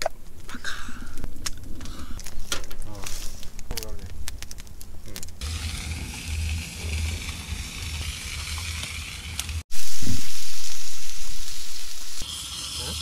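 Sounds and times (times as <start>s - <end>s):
low rumble: 3.5s - 12.2s
meat sizzling in a skillet: 5.4s - 13.0s.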